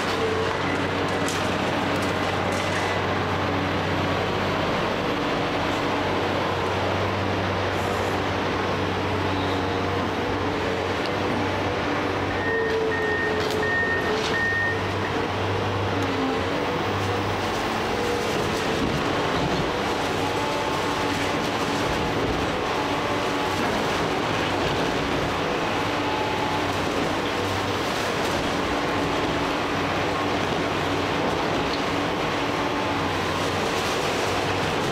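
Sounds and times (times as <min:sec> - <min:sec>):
excavator diesel engine and hydraulics: 0:00.0 - 0:34.9.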